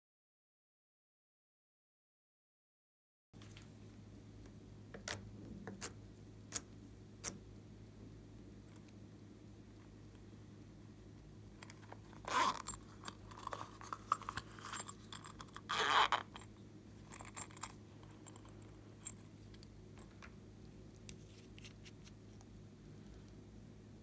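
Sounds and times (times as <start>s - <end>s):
zipper rasping on coin purse: 11.6s - 19.3s.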